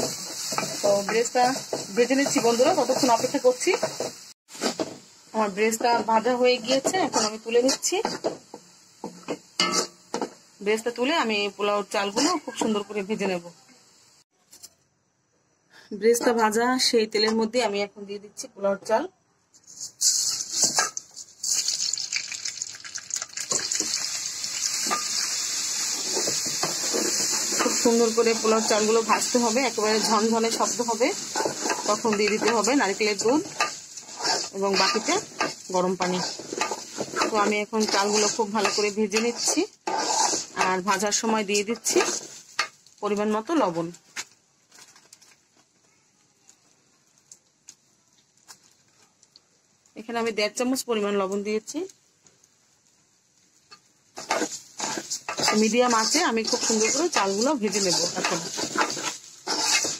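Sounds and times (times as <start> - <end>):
wooden spoon scraping and stirring: 0.0 - 5.1, 5.7 - 10.3, 19.6 - 21.3, 25.8 - 42.7, 54.1 - 59.9
rice sizzling in hot oil: 0.0 - 14.3, 19.6 - 45.8, 46.4 - 59.9.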